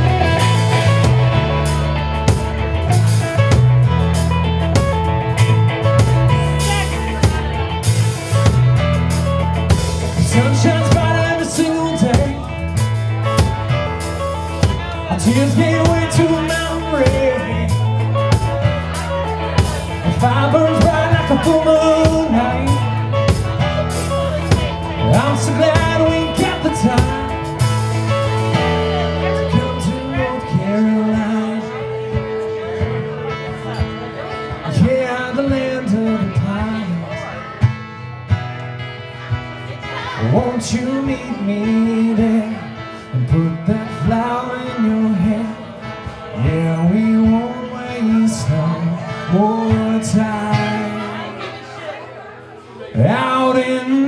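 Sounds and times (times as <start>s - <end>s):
rock band playing: 0.0s - 54.0s.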